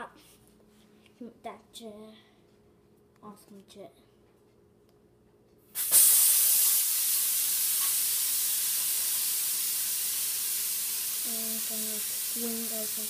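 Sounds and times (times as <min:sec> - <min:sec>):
loud steady hiss: 0:05.8 - 0:13.0.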